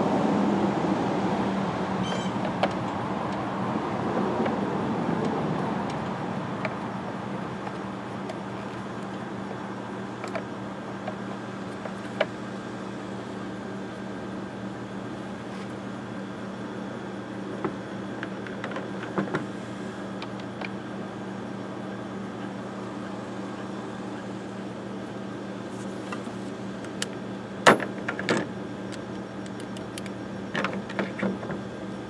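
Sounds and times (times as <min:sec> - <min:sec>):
steady low hum: 0:00.0 - 0:32.0
clicks and knocks of engine work: 0:10.2 - 0:12.4, 0:17.6 - 0:19.6, 0:20.2 - 0:20.8, 0:25.8 - 0:31.6.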